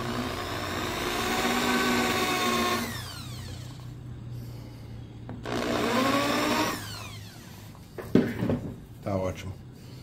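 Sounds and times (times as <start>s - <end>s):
electric drill motor: 0.0s - 3.9s, 5.4s - 7.8s.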